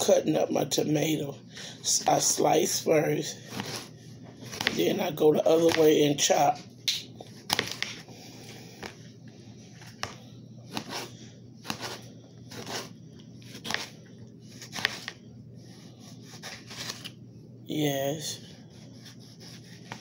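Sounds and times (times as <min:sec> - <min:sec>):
knife slicing tomato on plate: 0:10.0 - 0:12.9, 0:14.6 - 0:15.2.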